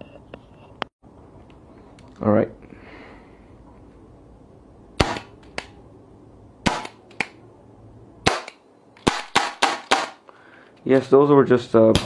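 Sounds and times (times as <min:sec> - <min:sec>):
gas pistol blank shots popping: 0:05.0 - 0:05.7, 0:06.6 - 0:07.4, 0:08.2 - 0:10.2.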